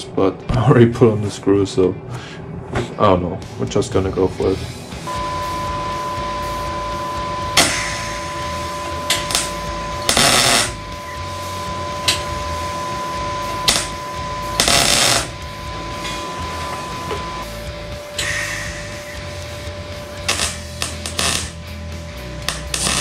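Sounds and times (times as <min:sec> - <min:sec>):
steady high whine: 0:01.0 - 0:23.0
welding arc crackling: 0:05.2 - 0:23.0.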